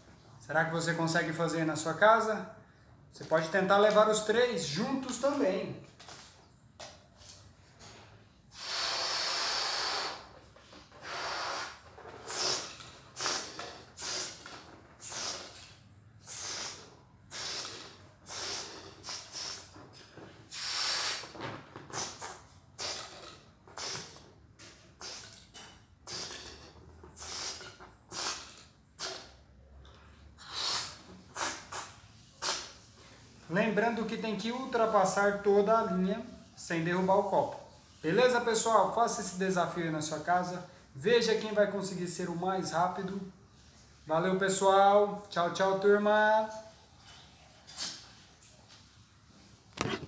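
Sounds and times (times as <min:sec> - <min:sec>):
air hissing out of balloon: 0:08.5 - 0:29.4, 0:30.4 - 0:33.0.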